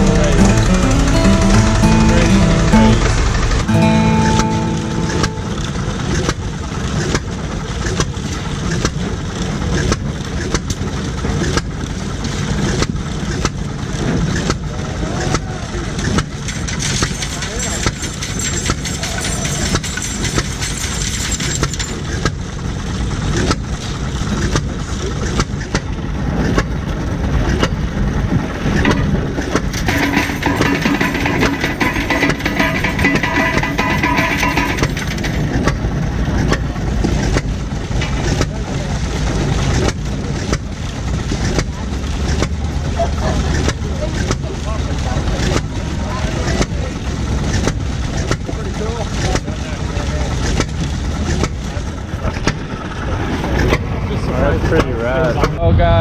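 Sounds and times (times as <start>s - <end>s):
guitar music: 0.0s - 6.6s
low engine rumble: 0.0s - 56.0s
sharp machine knocks: 29.8s - 35.7s.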